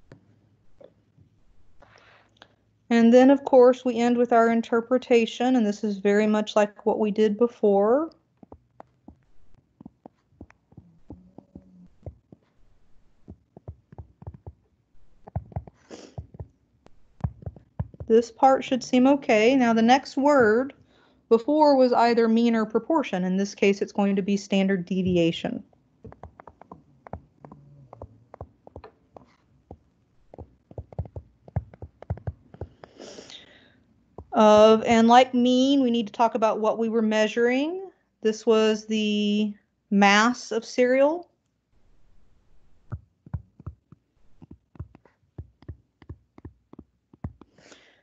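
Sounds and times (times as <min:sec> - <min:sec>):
stylus tapping on tablet screen: 0:08.4 - 0:18.2, 0:26.1 - 0:33.2, 0:42.9 - 0:47.7.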